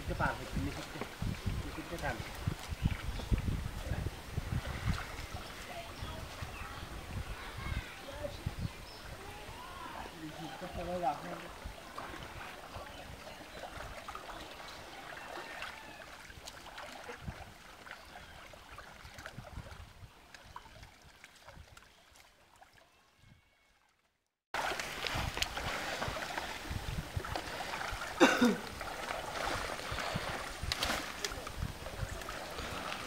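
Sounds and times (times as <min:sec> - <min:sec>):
water sloshing and splashing: 0:00.4 - 0:07.5, 0:10.2 - 0:22.9, 0:24.6 - 0:33.0
plants and net rustling: 0:24.6 - 0:33.0.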